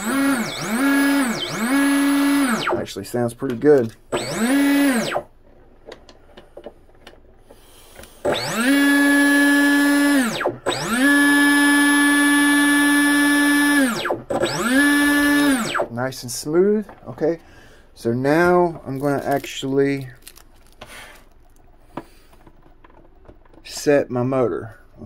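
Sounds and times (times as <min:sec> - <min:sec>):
electric motor whine: 0:00.0 - 0:02.8, 0:04.1 - 0:05.3, 0:08.2 - 0:15.9.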